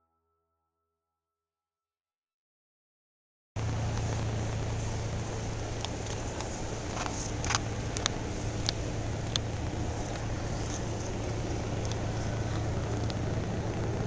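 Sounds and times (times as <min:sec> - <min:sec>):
low hum and hiss: 0:03.6 - 0:14.0
faint sharp clicks: 0:05.5 - 0:14.0.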